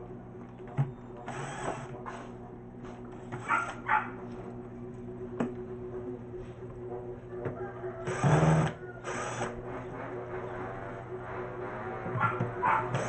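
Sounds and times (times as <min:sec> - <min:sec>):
cordless drill motor running: 0:01.2 - 0:02.0, 0:08.0 - 0:13.0
dog barking: 0:03.4 - 0:04.3, 0:12.2 - 0:13.0.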